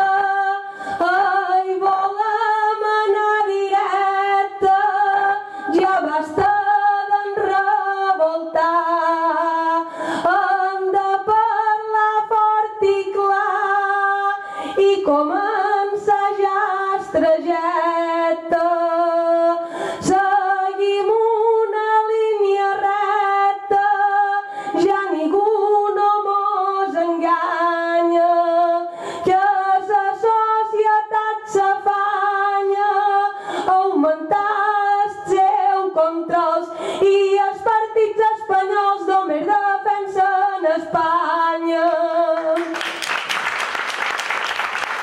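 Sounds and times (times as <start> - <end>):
woman singing unaccompanied: 0.0 - 42.8
audience applause: 42.6 - 45.0.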